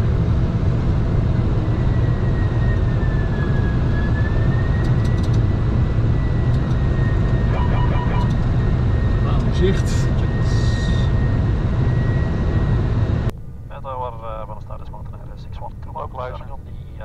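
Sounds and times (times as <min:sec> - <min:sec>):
airflow and engine rumble: 0:00.0 - 0:17.0
thin high whine: 0:06.2 - 0:12.8.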